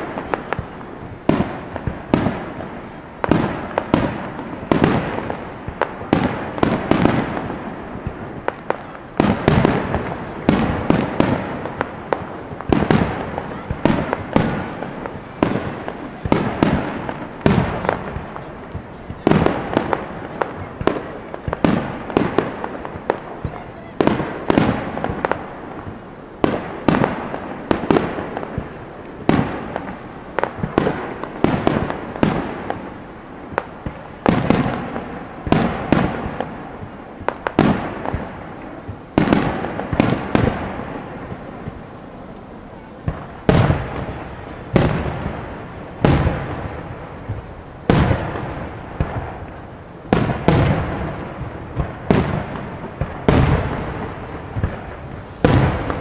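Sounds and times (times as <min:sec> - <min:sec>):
fireworks bursting with echo: 0:00.0 - 0:56.0.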